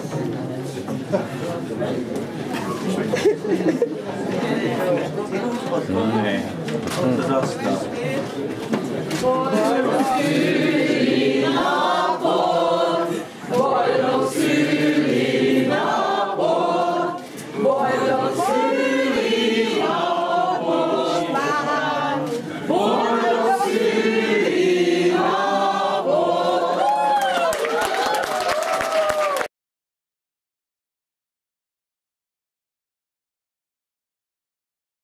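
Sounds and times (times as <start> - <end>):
group singing unaccompanied: 9.1 - 27.2.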